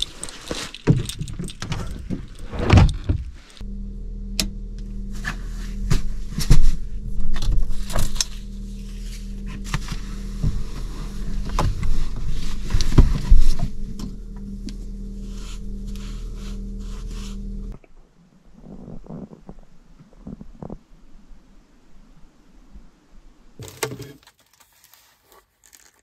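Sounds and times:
gear rustling and knocking: 0.0s - 3.6s, 5.3s - 14.2s
steady low hum: 0.0s - 21.6s.

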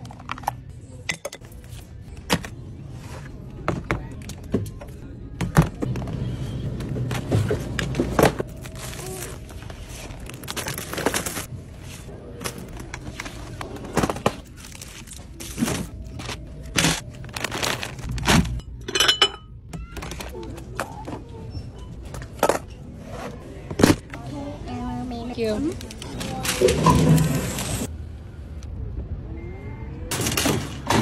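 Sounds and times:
packaging rustling: 12.6s - 18.4s
ceramic bowls clinking: 18.7s - 19.6s.

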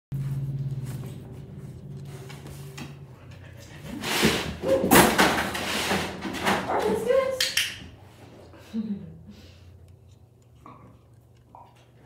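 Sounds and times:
low hum: 0.1s - 4.0s.

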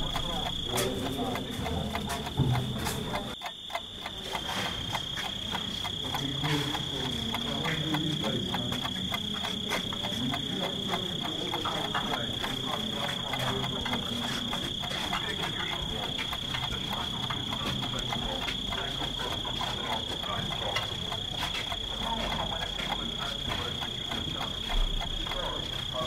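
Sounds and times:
footsteps on concrete: 0.7s - 3.4s, 20.6s - 24.8s.

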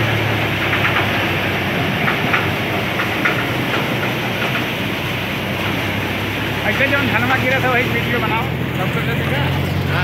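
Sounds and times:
short clatters: 0.0s - 5.0s
thresher drone and rattle: 0.0s - 10.0s.

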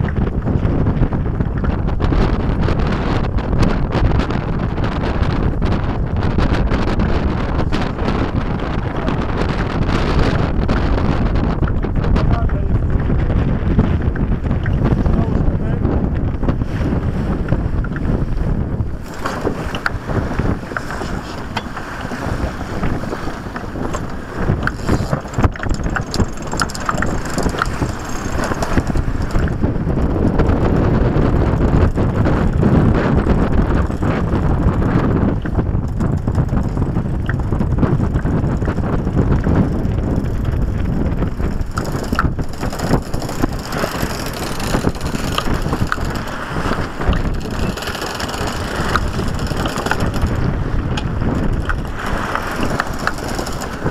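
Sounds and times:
wind buffeting microphone: 0.0s - 53.9s
winch ratcheting clicks: 23.9s - 29.4s, 41.4s - 46.4s, 47.1s - 50.4s, 51.5s - 53.9s.

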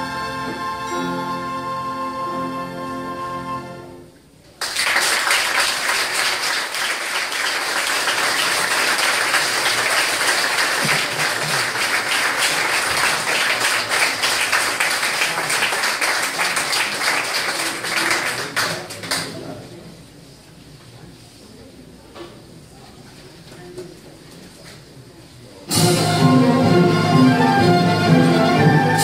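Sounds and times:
audience applauding: 4.6s - 19.5s.

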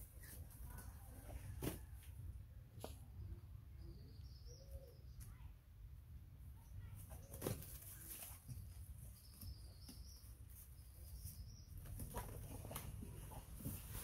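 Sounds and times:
faint high chirping call: 3.7s - 5.4s
leaves and branches rustling: 6.9s - 14.0s.

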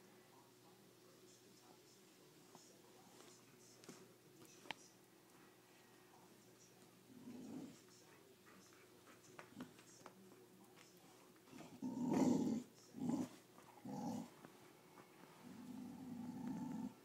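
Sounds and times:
dogs growling: 7.0s - 7.9s, 11.4s - 14.5s, 15.4s - 17.0s.

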